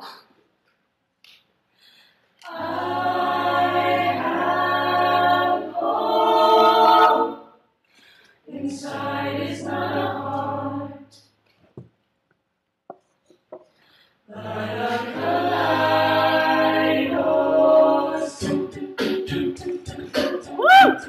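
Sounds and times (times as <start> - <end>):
a cappella group singing: 2.4 - 7.6, 8.4 - 11.4, 14.3 - 21.0.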